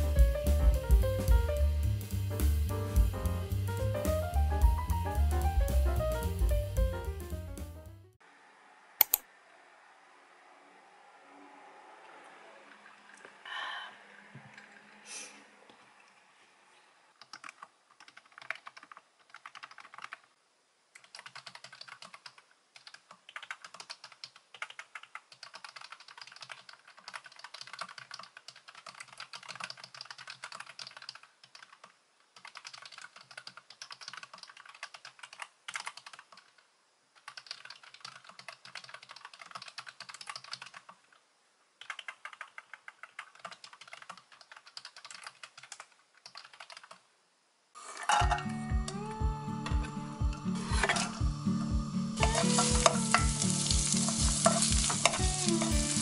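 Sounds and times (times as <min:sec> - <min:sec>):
fast typing on keyboard: 0:17.2 - 0:20.4, 0:21.0 - 0:36.6, 0:37.2 - 0:41.2, 0:41.8 - 0:47.1.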